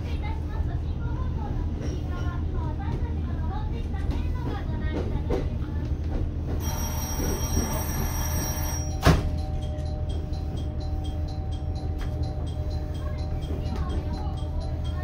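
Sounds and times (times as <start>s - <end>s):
railcar engine rumble: 0.0s - 15.0s
high steady tone: 6.6s - 15.0s.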